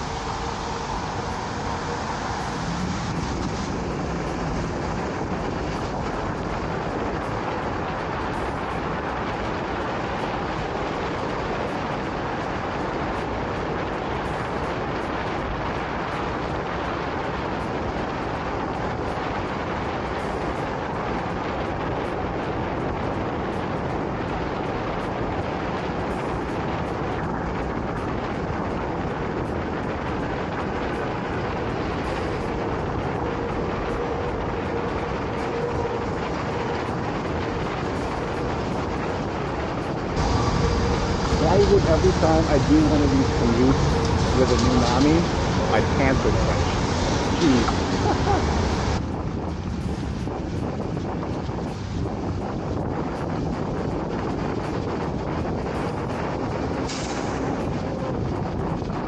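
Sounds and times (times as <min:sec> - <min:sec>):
wind rushing: 0:00.0 - 0:59.0
tyres on wet pavement: 0:40.2 - 0:49.0.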